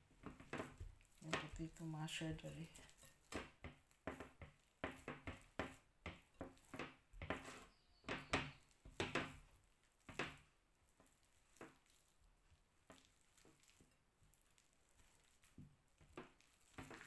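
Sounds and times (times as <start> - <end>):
potato masher knocking in bowl: 0.2 - 9.5.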